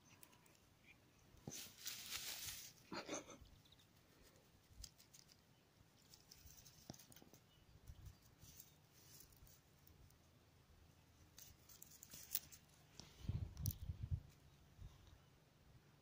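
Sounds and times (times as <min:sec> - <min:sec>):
faint rustles and clicks: 0:00.0 - 0:10.3, 0:11.0 - 0:15.2.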